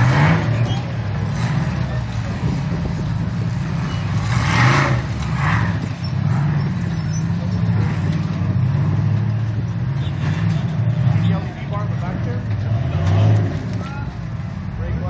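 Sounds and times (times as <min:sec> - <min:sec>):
buggy engines revving: 0:00.0 - 0:15.0.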